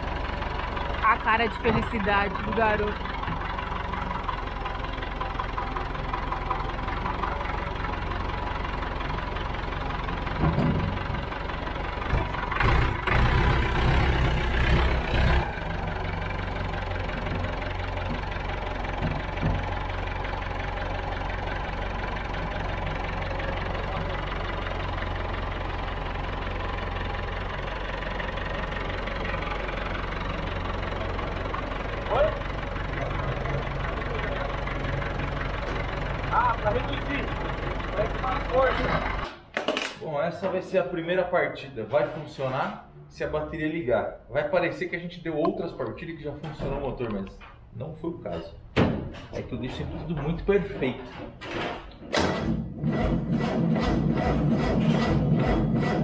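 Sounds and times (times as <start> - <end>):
tractor engine idling: 0.0 - 39.5, 44.2 - 56.0
thump: 48.7 - 49.3.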